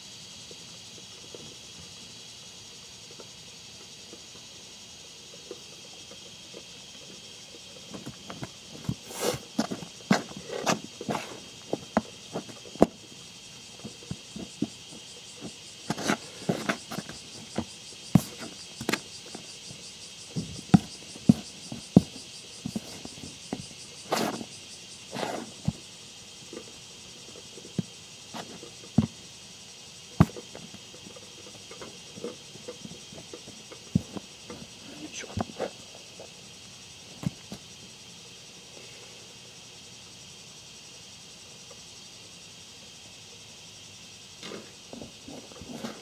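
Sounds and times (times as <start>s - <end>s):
trowel scraping through soil: 8.9s - 12.9s, 15.4s - 19.4s.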